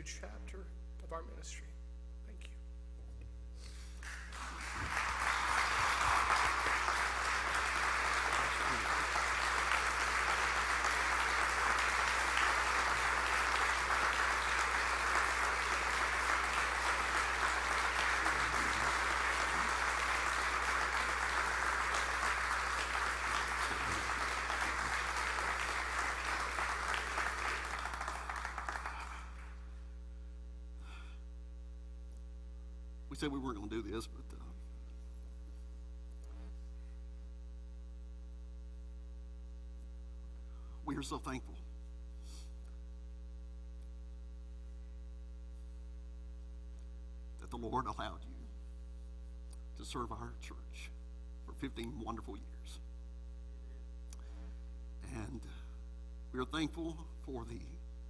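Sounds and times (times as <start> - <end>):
crowd clapping: 4.0 - 29.7.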